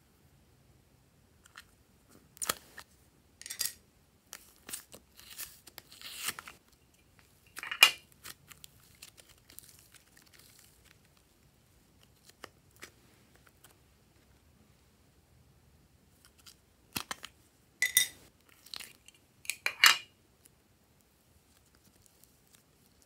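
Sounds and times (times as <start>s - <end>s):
clay tearing rustles: 4.3s - 13.8s, 20.4s - 23.0s.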